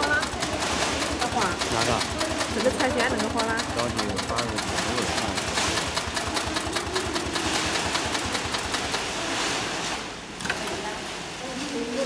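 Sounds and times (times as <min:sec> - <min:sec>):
sewing machine clattering: 0:00.0 - 0:09.4
sewing machine click: 0:00.1 - 0:09.1.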